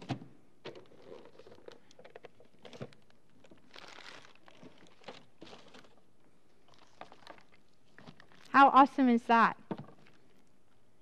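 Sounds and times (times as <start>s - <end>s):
wrapping paper rustling: 0.8s - 6.0s.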